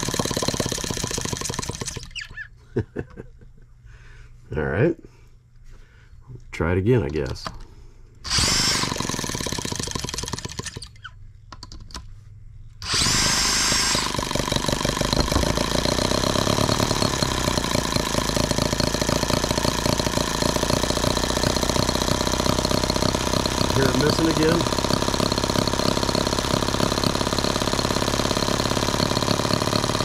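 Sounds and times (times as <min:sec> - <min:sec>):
model engine running: 0:00.0 - 0:02.4, 0:08.2 - 0:11.1, 0:12.8 - 0:30.0
electric drill spinning engine: 0:00.0 - 0:02.5, 0:08.2 - 0:11.2, 0:12.8 - 0:30.0.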